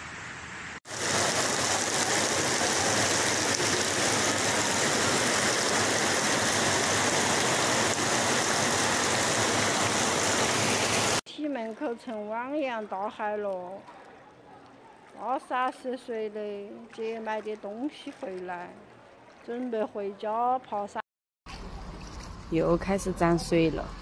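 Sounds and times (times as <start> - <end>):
quieter water noise: 0.1 - 12.2, 13.1 - 23.9
floodwater rushing: 0.9 - 11.2.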